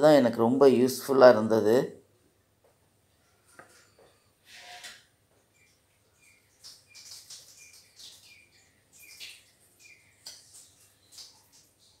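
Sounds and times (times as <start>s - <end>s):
bird chirping: 5.3s - 12.0s.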